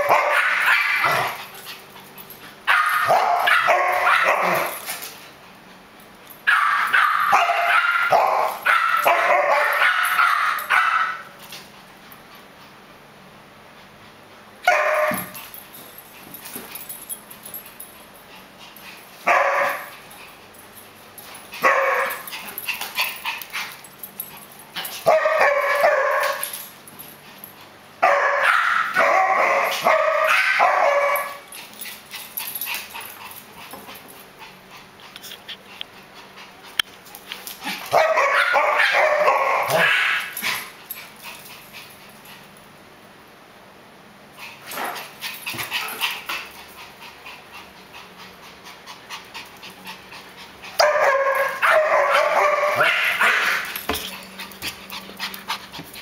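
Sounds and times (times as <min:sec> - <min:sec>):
dogs barking while playing: 0:00.0 - 0:05.2, 0:06.3 - 0:11.6, 0:14.6 - 0:17.6, 0:18.4 - 0:35.0, 0:36.6 - 0:42.0, 0:47.7 - 0:56.0.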